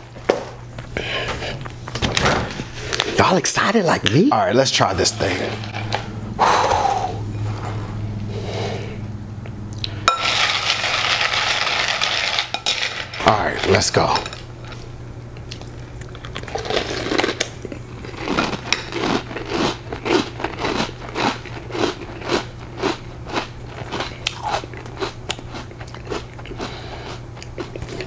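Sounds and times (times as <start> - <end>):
person chewing crunchy cereal: 9.8 - 28.0.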